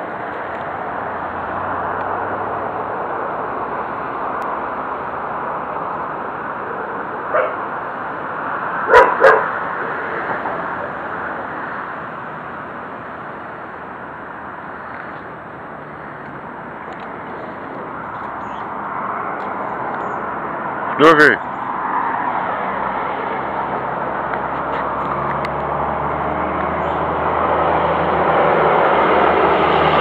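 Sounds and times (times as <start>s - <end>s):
dog barking: 7.3s - 7.6s, 8.9s - 9.6s.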